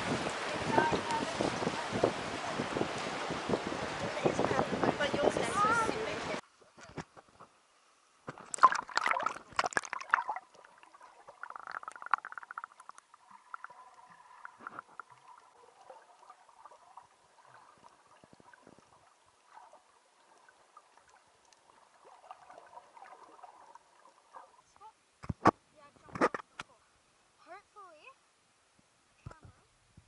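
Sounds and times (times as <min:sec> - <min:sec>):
splashing and bubbles: 0:08.3 - 0:24.8
muffled underwater bubbling: 0:08.4 - 0:24.6.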